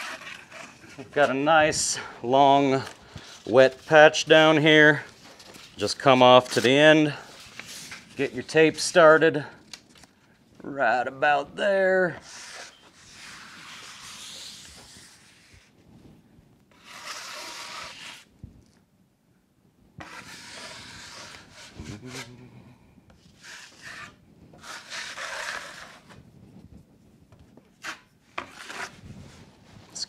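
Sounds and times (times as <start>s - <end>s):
drywall knife scraping: 0.0s - 2.1s, 12.1s - 15.7s, 16.7s - 18.3s, 20.0s - 22.4s, 23.2s - 26.2s, 27.8s - 29.1s.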